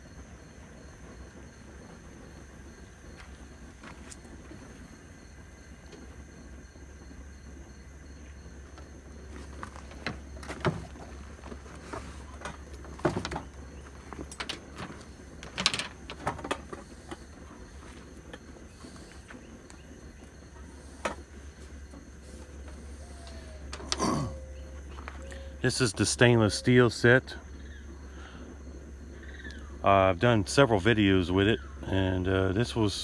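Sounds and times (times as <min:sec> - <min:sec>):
canvas bags rustling: 0:09.2 - 0:19.6
clicks and knocks: 0:12.4 - 0:17.3.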